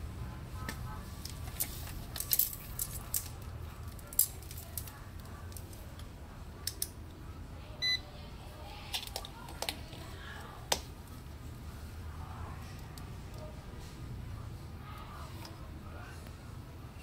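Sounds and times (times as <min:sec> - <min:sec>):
clicks and rattles of handled leads: 0:01.2 - 0:06.1.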